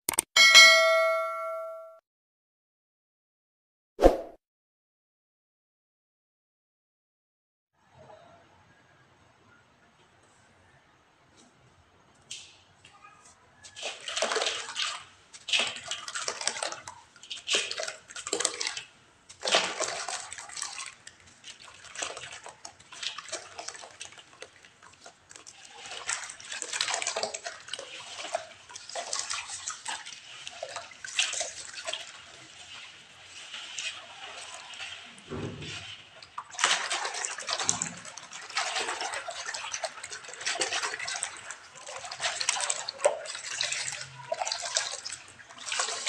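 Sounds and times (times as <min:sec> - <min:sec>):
water sloshing in metal basin: 0:13.7 - 0:46.0.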